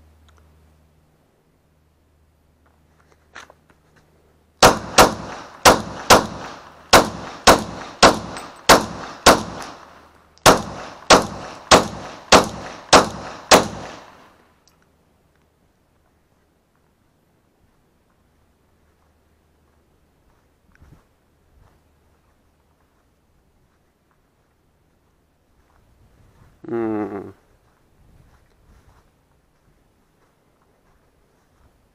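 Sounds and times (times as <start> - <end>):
pistol shots: 4.6 - 14.3.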